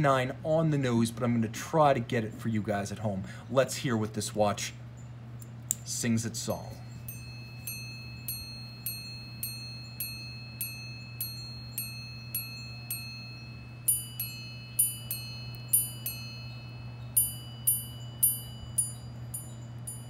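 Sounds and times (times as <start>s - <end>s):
watch hammers striking gongs: 7.0s - 20.0s.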